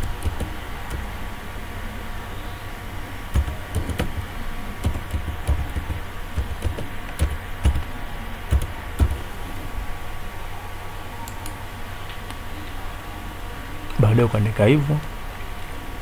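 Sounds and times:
keyboard typing: 0:00.0 - 0:01.1, 0:03.3 - 0:07.9, 0:08.5 - 0:09.3
steady background hum: 0:00.0 - 0:16.0.

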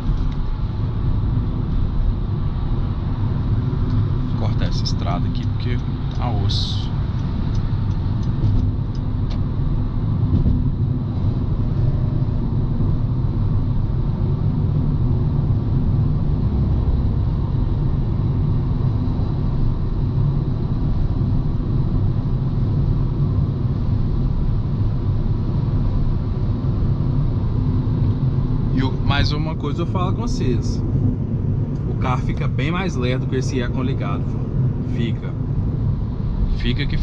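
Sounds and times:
car engine and road noise: 0:00.0 - 0:37.0.

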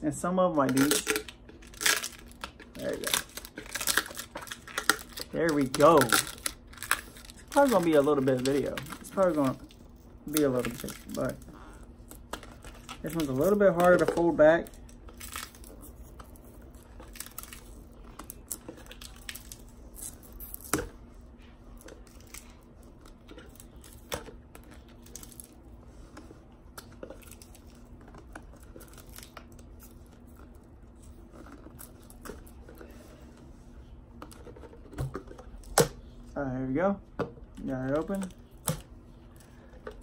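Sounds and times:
faint steady hum: 0:00.0 - 0:40.0
packing tape tearing and peeling: 0:00.7 - 0:09.7.

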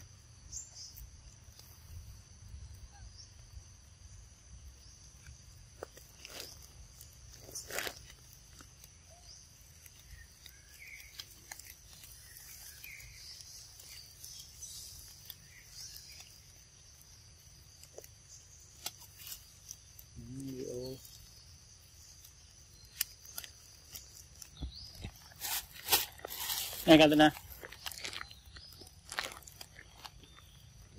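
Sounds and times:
high insect hum: 0:00.0 - 0:30.9
bird chirps: 0:08.9 - 0:30.9.

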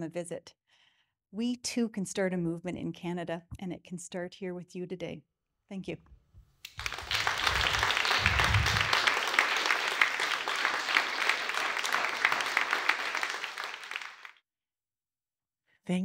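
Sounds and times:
audience applauding: 0:06.7 - 0:14.4.

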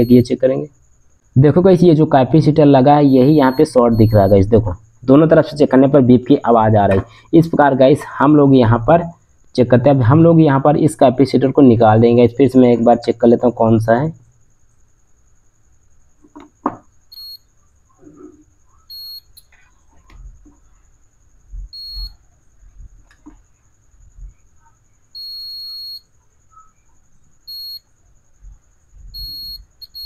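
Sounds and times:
multimeter continuity beeps: 0:00.0 - 0:07.8, 0:16.3 - 0:22.4, 0:24.3 - 0:30.0.

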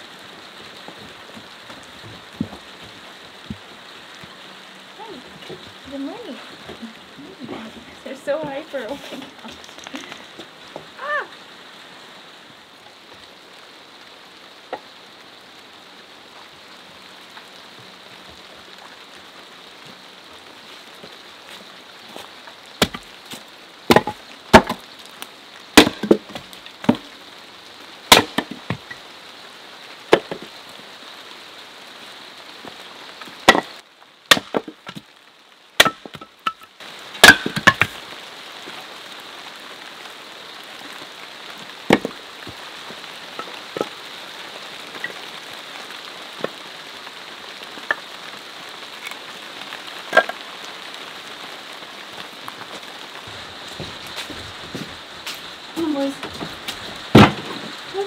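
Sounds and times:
axe chopping kindling on wood: 0:22.8 - 0:23.1, 0:23.9 - 0:24.8, 0:25.8 - 0:27.0, 0:28.1 - 0:28.6, 0:34.3 - 0:35.0, 0:35.8 - 0:36.3, 0:37.2 - 0:37.9, 0:41.9 - 0:42.1, 0:57.1 - 0:57.6.

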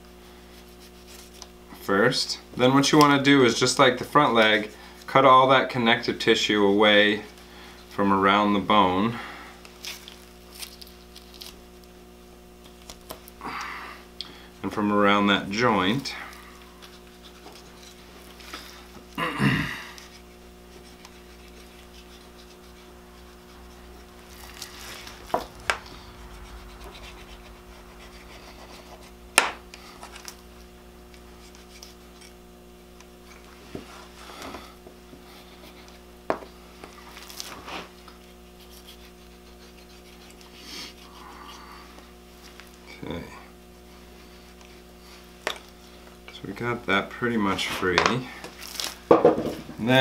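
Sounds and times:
steady low hum: 0:00.0 - 0:50.0
knife scraping and cutting: 0:16.3 - 0:18.9, 0:20.0 - 0:34.2, 0:37.0 - 0:41.6.

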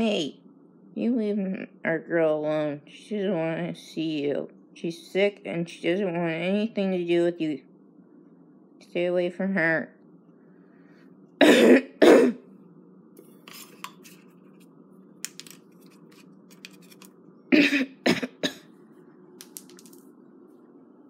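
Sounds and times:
person coughing: 0:11.4 - 0:12.4, 0:17.5 - 0:18.7.

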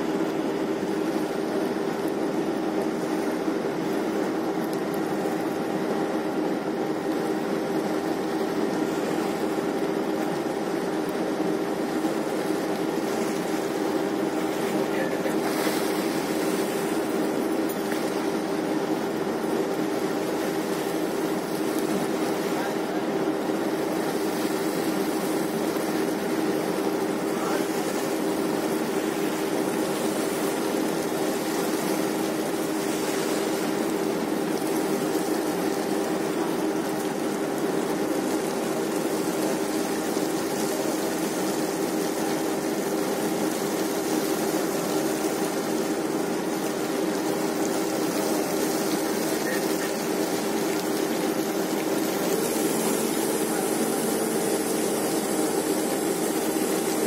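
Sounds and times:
low hum tones: 0:00.0 - 0:57.0
winch paying out cable: 0:08.6 - 0:41.4, 0:44.5 - 0:57.0.

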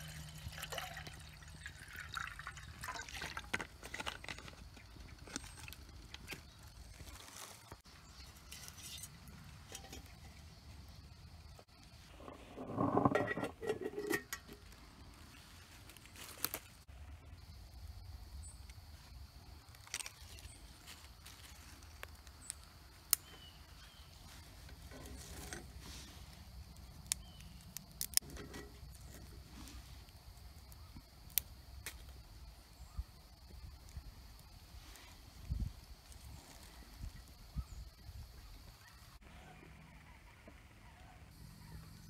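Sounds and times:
wood fire crackling and popping: 0:26.7 - 0:29.4.

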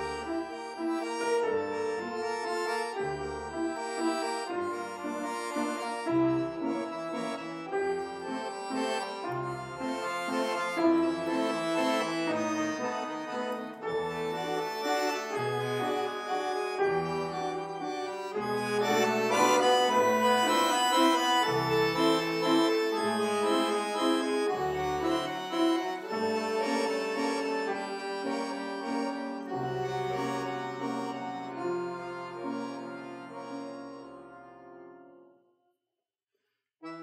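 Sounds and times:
accordion chords: 0:00.0 - 0:35.2
piano bass notes: 0:09.4 - 0:34.6.

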